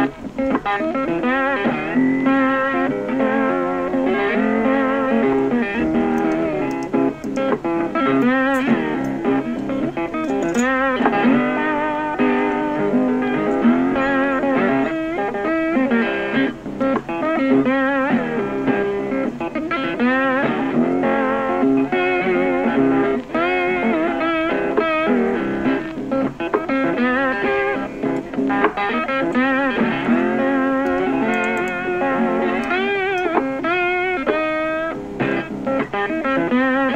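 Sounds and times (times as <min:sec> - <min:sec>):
guitar music with bending notes: 0:00.0 - 0:36.9.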